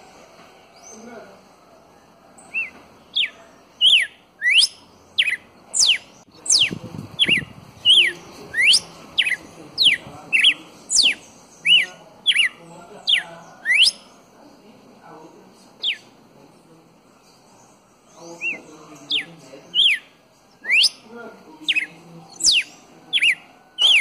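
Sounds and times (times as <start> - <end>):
bird singing whistled notes: 2.4 - 14.2, 15.8 - 16.1, 17.9 - 24.0.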